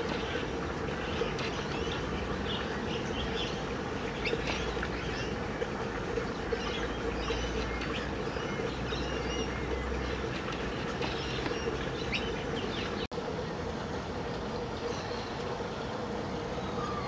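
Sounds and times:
small birds chirping: 0.0 - 13.1.

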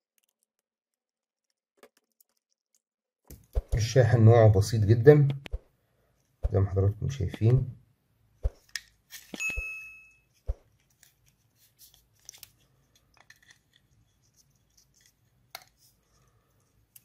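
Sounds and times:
short ringing clink: 9.4 - 10.2
plastic clicks and rustles: 10.7 - 15.9.

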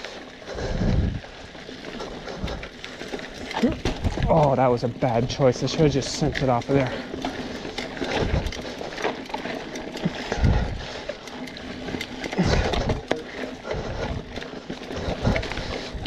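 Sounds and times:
bike clicking and rattling: 0.0 - 16.0
bike tyres on dirt: 0.0 - 16.0
low thumps over bumps: 0.5 - 1.3.

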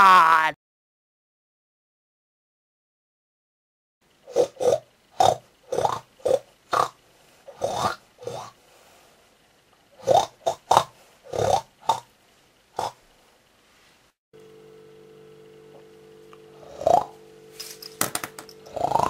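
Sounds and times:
pig grunts and oinks: 4.2 - 8.6, 10.0 - 12.1, 12.7 - 13.0, 16.6 - 17.2, 18.7 - 19.0.

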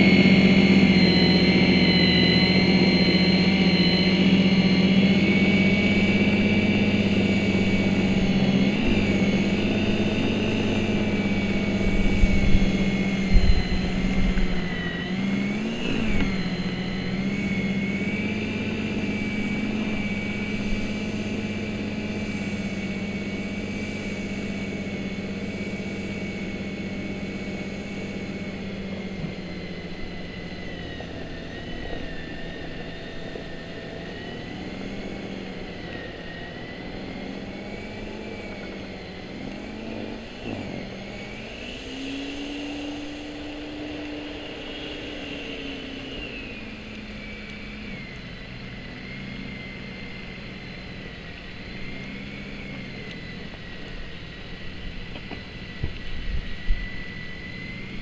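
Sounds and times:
electric snow thrower motor whine: 0.0 - 58.0.

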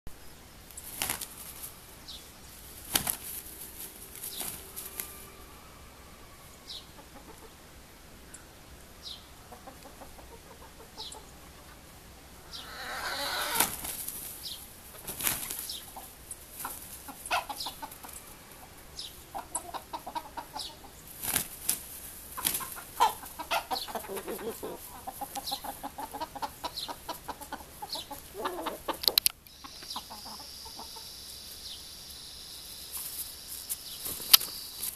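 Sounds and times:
wings flapping: 0.7 - 1.8, 2.6 - 5.2, 13.4 - 17.4, 21.1 - 23.6, 34.0 - 34.9
chickens clucking: 0.7 - 32.0
short high bird calls: 12.4 - 13.7.

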